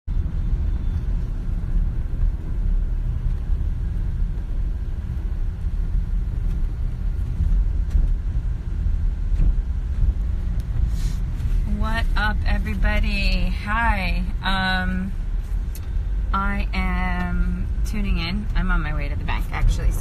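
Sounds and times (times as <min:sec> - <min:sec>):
car road and engine rumble: 0:00.0 - 0:20.0.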